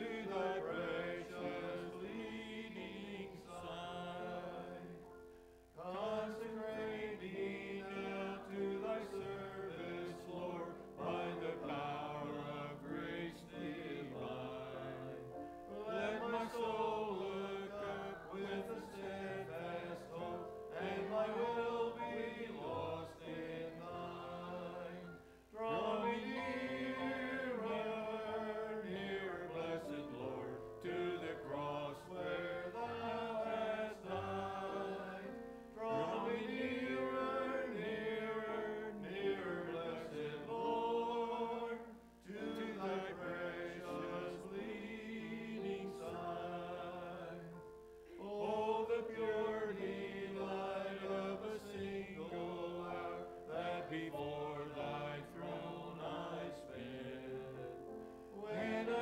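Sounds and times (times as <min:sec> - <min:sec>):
man leading hymn singing: 0:00.0 - 0:59.0.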